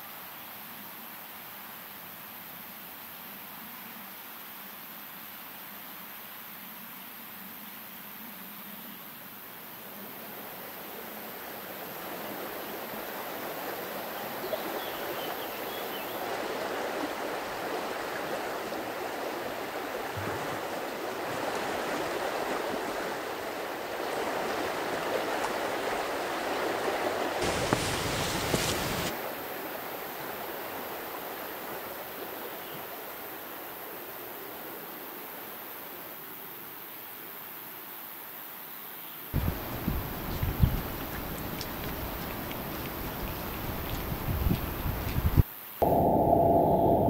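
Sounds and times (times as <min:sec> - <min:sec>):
rushing river water: 0:09.6 - 0:36.4, 0:39.4 - 0:46.2
low rumble: 0:45.8 - 0:47.0.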